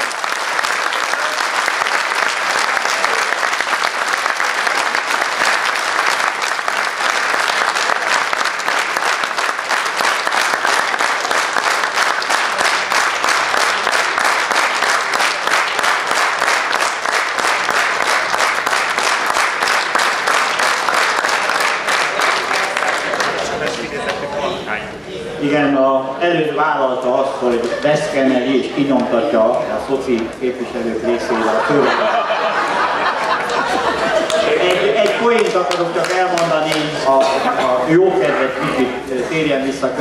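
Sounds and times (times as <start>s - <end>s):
audience applauding: 0.0s - 24.3s, 31.0s - 37.3s.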